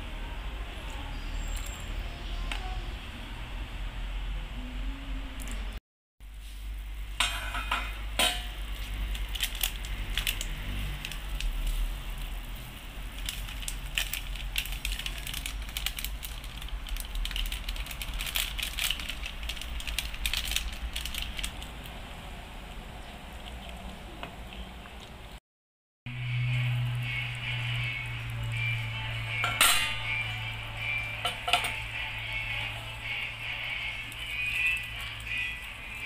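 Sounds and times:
broth bubbling in a pot: 6.3s - 25.4s.

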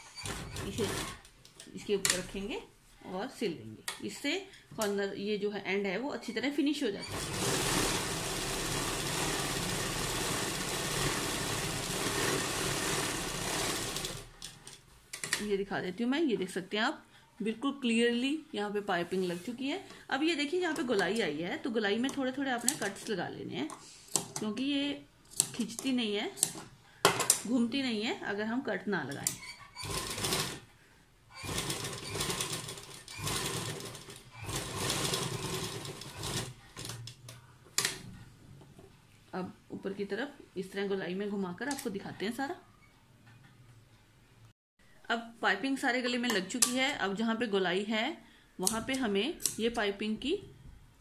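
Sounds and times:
sewing machine running: 0.2s - 1.3s, 7.0s - 14.4s, 29.8s - 30.6s, 31.4s - 37.0s.

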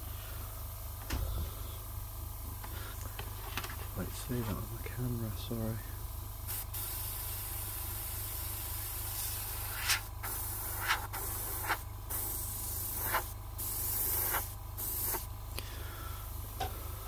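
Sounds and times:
airbrush hissing: 5.7s - 16.4s.

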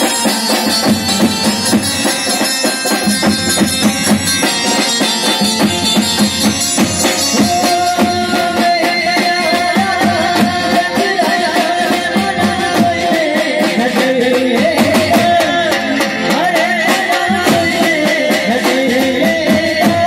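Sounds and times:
held wavering melody line: 0.0s - 10.2s
fast drum rhythm: 0.0s - 20.0s
folk band instrumental melody: 0.0s - 20.0s.

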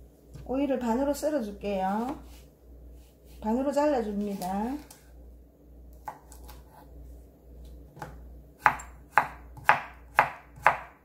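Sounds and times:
knife chopping on wooden board: 6.0s - 6.9s, 7.9s - 11.0s.

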